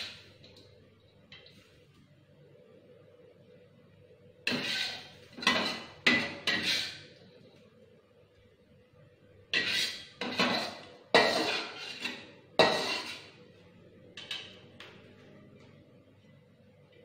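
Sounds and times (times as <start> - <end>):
metal spatula scraping a wok: 4.5 - 7.1, 9.5 - 13.4.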